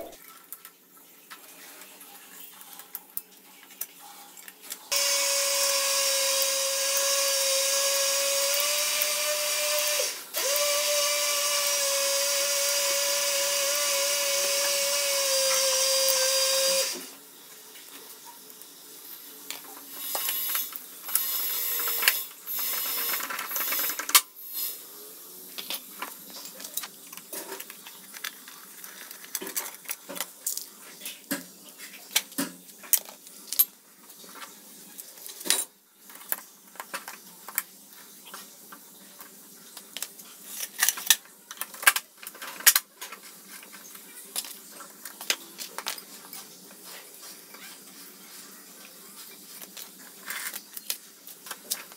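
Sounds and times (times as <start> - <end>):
power tool running: 4.9 - 17.1, 20.1 - 24.0.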